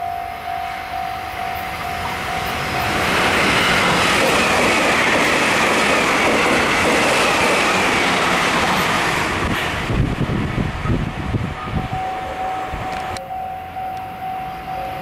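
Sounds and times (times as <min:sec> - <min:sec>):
electric train passing: 0:00.0 - 0:15.0
high train whine: 0:00.0 - 0:15.0
repeating tone: 0:11.6 - 0:15.0.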